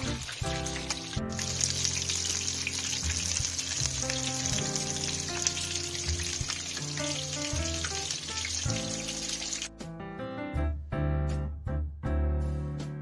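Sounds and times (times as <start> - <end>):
hot oil sizzling and crackling: 0.0 - 9.7.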